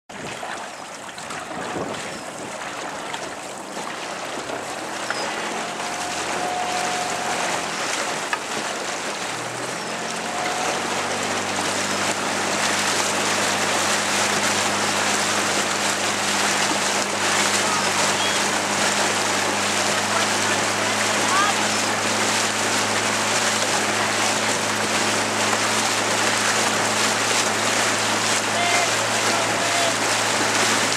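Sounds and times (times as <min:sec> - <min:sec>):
water noise from moving boat: 0:00.1 - 0:30.9
wind rushing over microphone: 0:01.3 - 0:02.6
low motor drone: 0:04.6 - 0:30.9.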